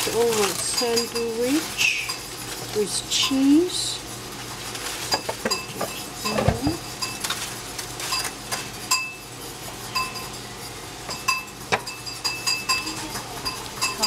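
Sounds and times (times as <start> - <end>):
cookware clinking: 0.3 - 2.3, 5.1 - 7.3, 11.1 - 14.0.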